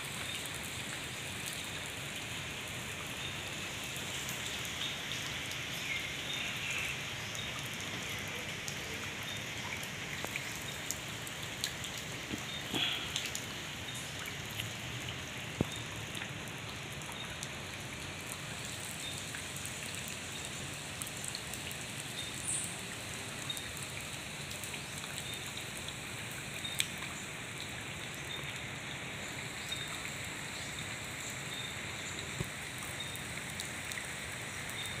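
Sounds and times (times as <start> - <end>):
steady rain hiss: 0.0 - 35.0
sharp drip ticks: 8.6 - 22.8, 23.4 - 28.7.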